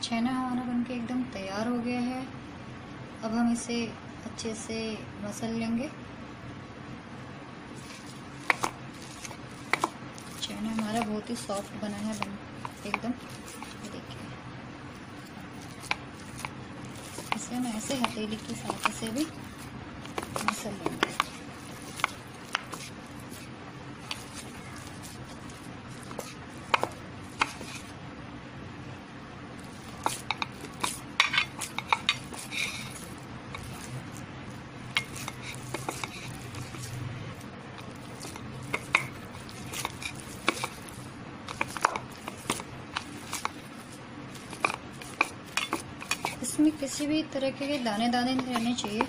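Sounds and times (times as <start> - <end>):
steady low hum: 0.0 - 49.0
hand kneading on steel plate: 7.7 - 14.2, 14.9 - 28.0, 29.6 - 49.0.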